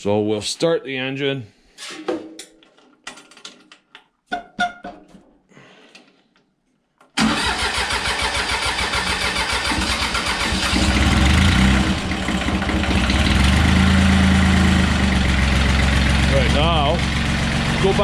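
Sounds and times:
diesel tractor engine starting: 7.2 - 18.0.

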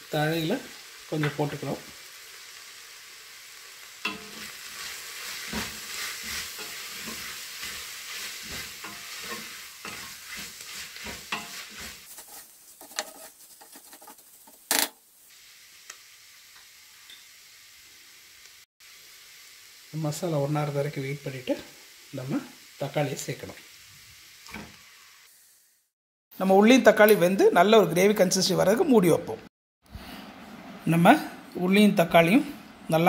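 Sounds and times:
onions sizzling in oil: 0.0 - 26.0
spatula scraping a pot: 4.1 - 14.7.

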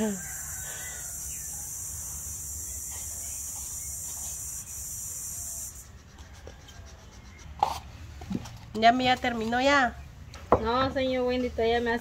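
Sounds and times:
high-pitched insect chorus: 0.0 - 5.9.

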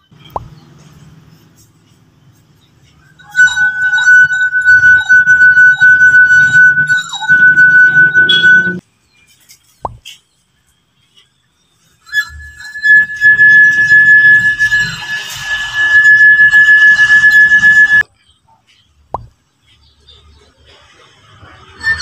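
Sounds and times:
finger rubbing glass rim: 3.2 - 8.8, 12.0 - 18.0
wine glass singing: 3.2 - 8.8, 12.0 - 18.0, 21.6 - 22.0.

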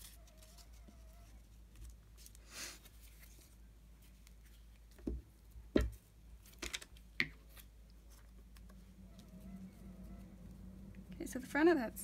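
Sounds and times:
paper rustling: 0.0 - 5.0.

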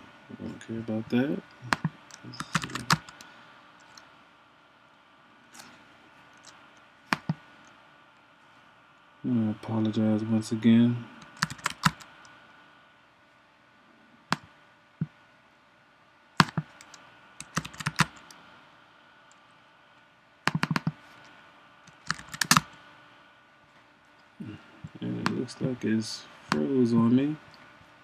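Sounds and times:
computer keys clicking: 1.7 - 4.0, 11.2 - 12.1, 16.4 - 18.4, 20.5 - 21.0, 21.9 - 22.7.

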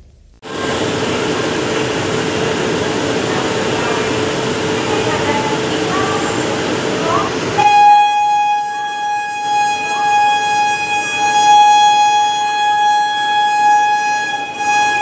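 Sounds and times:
locomotive horn blast: 7.6 - 15.0.

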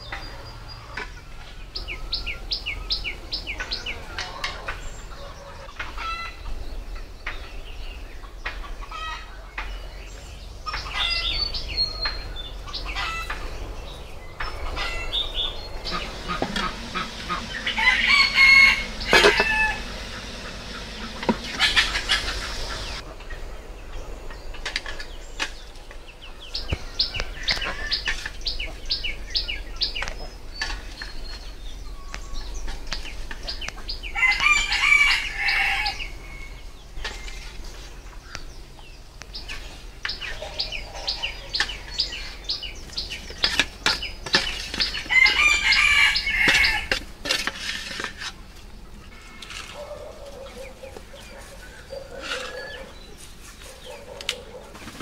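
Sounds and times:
chickens clucking: 0.0 - 55.0
rooster crowing: 14.7 - 23.0, 34.1 - 36.7, 45.1 - 46.9.

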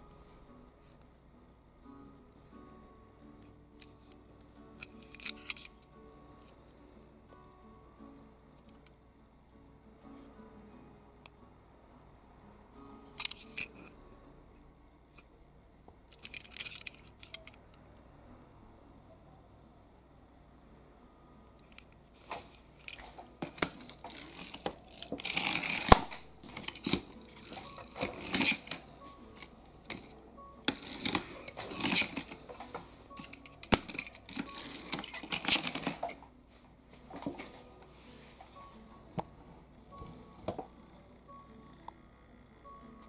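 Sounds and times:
toy car clicking on tabletop: 16.1 - 17.6, 22.8 - 30.1, 30.7 - 32.4, 33.2 - 36.1
toy car spring motor whirring: 16.1 - 17.6, 22.8 - 30.1, 30.7 - 32.4, 33.2 - 36.1.

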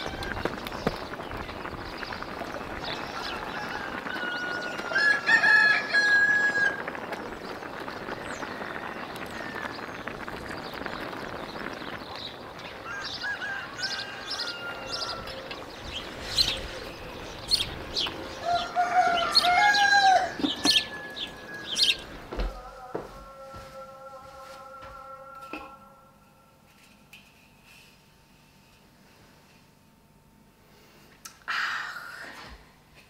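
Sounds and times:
rooster crowing: 3.2 - 6.9, 12.8 - 16.9, 18.2 - 26.0.

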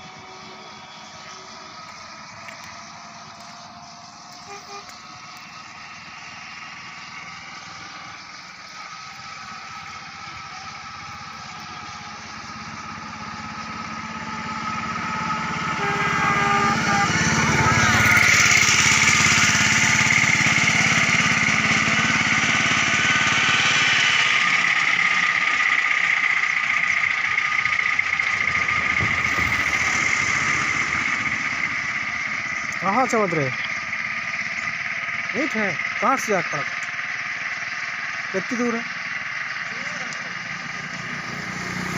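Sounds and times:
vehicle engine passing by: 0.0 - 41.9.

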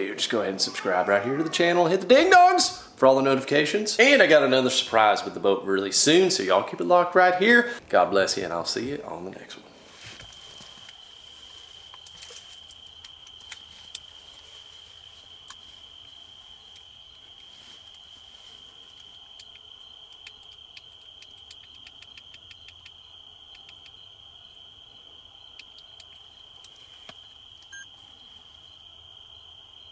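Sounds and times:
crickets trilling: 3.7 - 29.9
faint clicks: 19.0 - 24.0, 25.5 - 27.7.

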